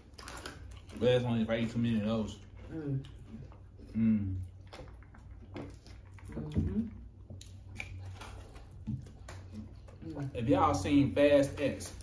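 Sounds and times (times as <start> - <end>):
low steady hum: 0.0 - 12.0
people chewing with wet mouth noises: 0.0 - 12.0
hum-like vocal sound: 2.6 - 4.5.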